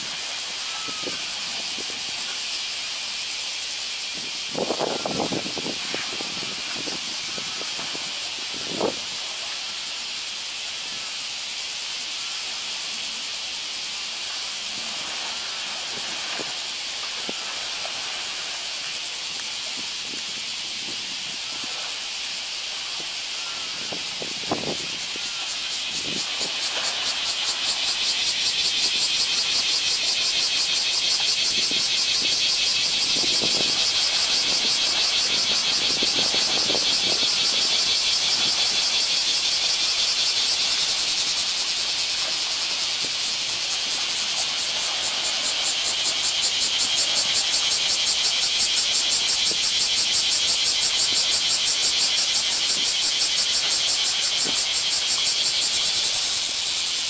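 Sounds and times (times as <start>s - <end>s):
high-pitched pulsing buzzing hiss: 0.0s - 57.0s
elephants splashing in water: 14.1s - 20.2s.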